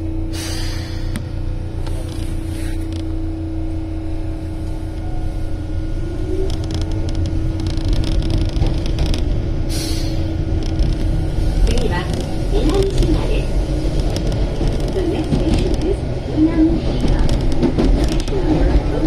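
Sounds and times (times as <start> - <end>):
train hum and rumble: 0.0 - 19.0
wheel clicks of passing train: 10.6 - 19.0.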